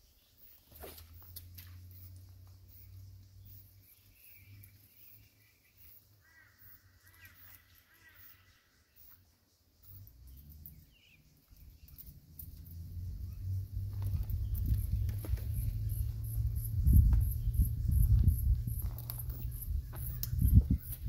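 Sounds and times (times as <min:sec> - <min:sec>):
faint bird calls: 0:00.1 - 0:21.0
low rumble: 0:11.8 - 0:21.0.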